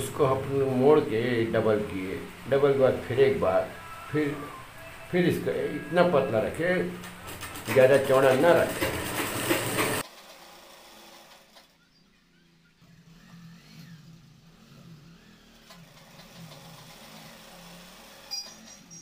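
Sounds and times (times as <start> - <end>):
sewing machine rattling: 6.3 - 11.7, 15.6 - 19.0.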